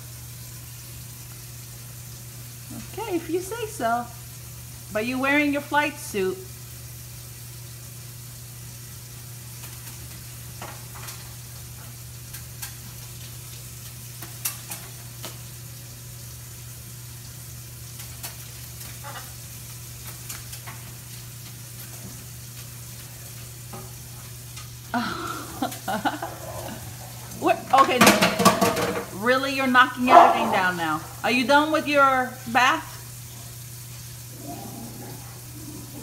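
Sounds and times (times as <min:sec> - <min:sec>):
parrot splashing and flapping: 0:24.9 - 0:29.2.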